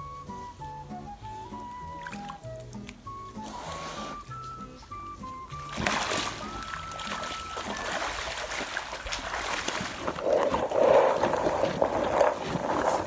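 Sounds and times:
mud splashing and squelching: 5.5 - 13.0.

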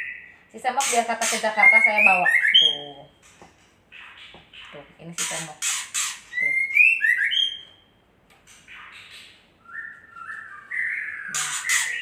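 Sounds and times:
bird singing whistled phrases: 1.6 - 2.8, 6.3 - 7.7, 9.6 - 12.0
harsh bird notes: 8.8 - 12.0.

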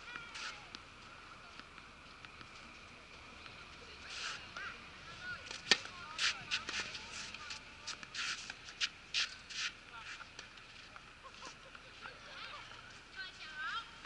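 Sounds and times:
soft scraping noises: 0.1 - 13.6
tennis racket striking ball: 5.5 - 9.7.

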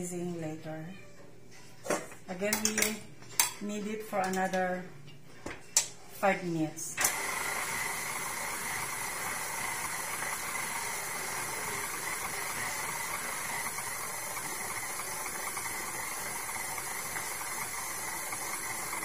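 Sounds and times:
stand mixer motor whirring: 7.0 - 19.0.

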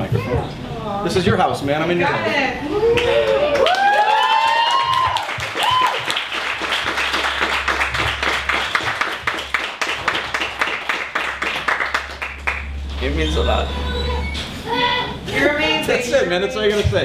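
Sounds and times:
crowd applauding: 2.9 - 13.0.

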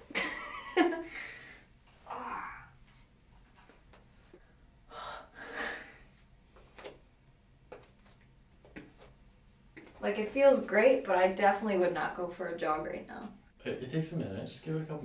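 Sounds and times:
woman gasping: 4.9 - 6.2.

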